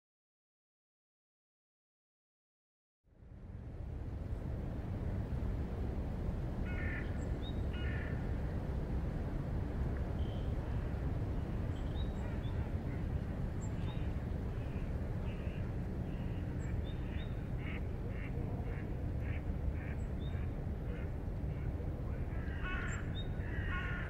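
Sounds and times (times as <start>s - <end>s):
bird calls: 11.7s - 24.0s.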